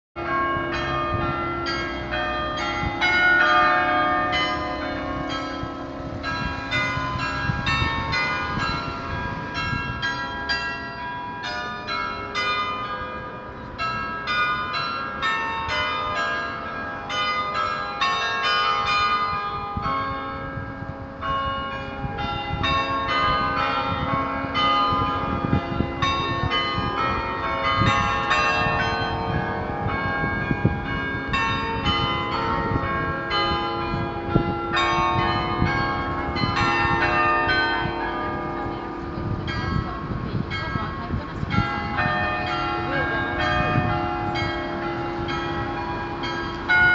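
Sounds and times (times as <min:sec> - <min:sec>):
carillon bells playing a tune: 0:00.2 - 0:46.9.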